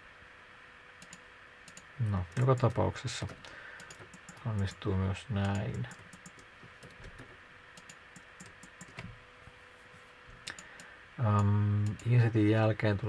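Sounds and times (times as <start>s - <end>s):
keyboard clicks: 1.0s - 4.8s, 5.4s - 7.2s, 7.8s - 9.1s, 10.4s - 12.2s.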